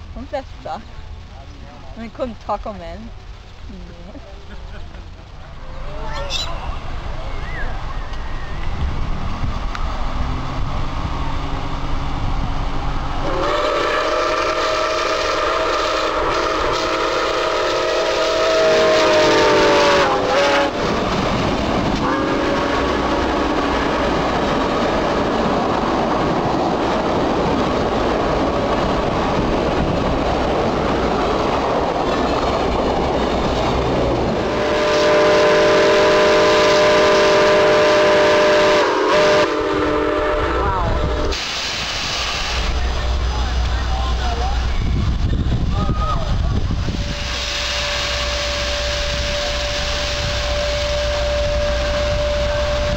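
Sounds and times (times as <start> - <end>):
train wheels rumbling over rails: 0.0 - 52.9
steam locomotive chime whistle: 13.2 - 20.8, 34.4 - 41.4, 46.9 - 52.9.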